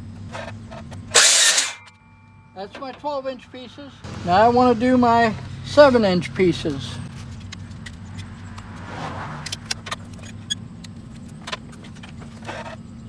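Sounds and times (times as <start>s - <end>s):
tape measure and pencil clicks: 1.1s - 1.9s.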